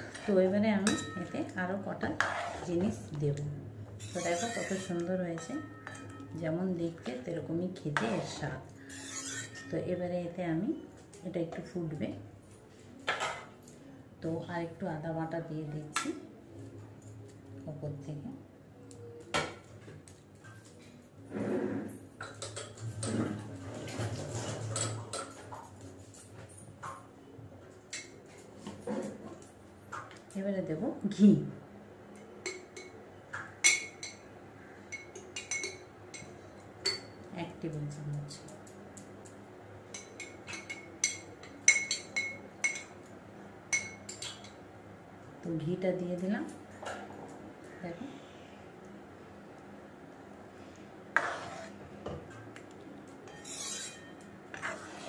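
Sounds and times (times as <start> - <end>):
utensil clinking on metal pot: 0.8 - 1.4, 4.0 - 6.4, 39.9 - 43.0.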